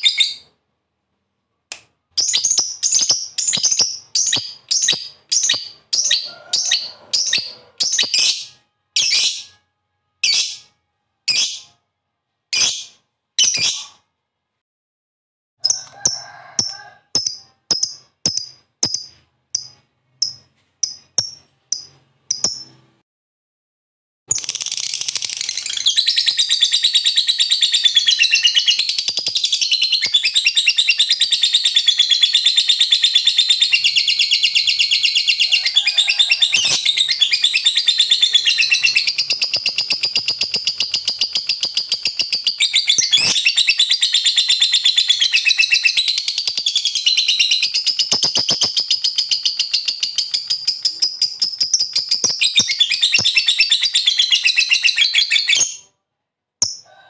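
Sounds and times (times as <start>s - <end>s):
bird high-pitched trilling chatter: 2.2s - 9.5s, 24.3s - 55.8s.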